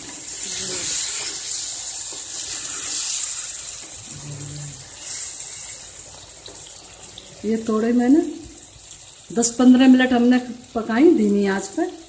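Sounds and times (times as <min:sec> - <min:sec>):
spatula stirring in pan: 0:00.0 - 0:07.5
vegetables sizzling in a pan: 0:00.0 - 0:12.0.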